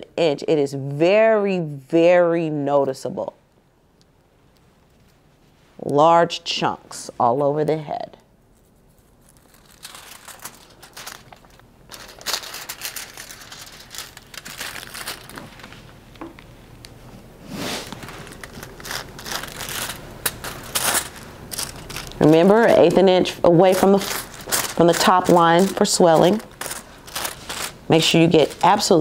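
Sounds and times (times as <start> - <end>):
aluminium foil crinkling: 8.4 - 16.5, 17.8 - 29.0.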